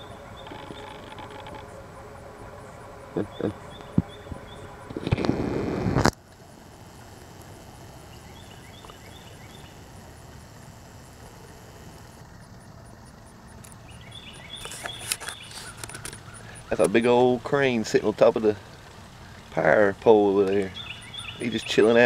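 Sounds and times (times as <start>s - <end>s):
loud rush of noise: 0.0s - 8.6s
faint high insect chirp: 0.0s - 22.0s
low outdoor rumble: 0.0s - 22.0s.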